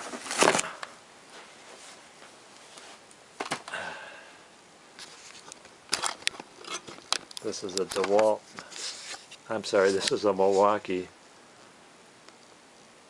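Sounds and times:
low room hiss: 0.0s - 13.0s
handling rustle: 5.0s - 10.8s.

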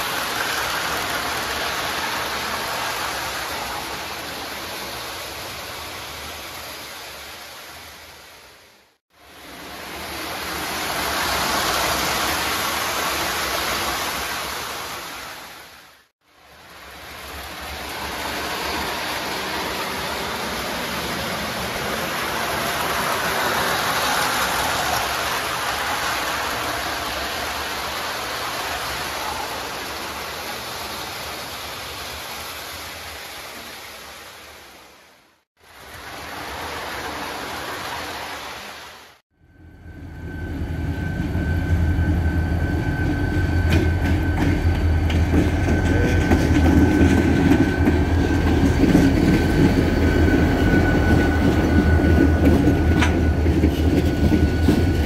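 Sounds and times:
model train rumbling on track: 0.0s - 6.4s, 9.3s - 15.2s, 16.4s - 31.7s, 39.5s - 55.0s.

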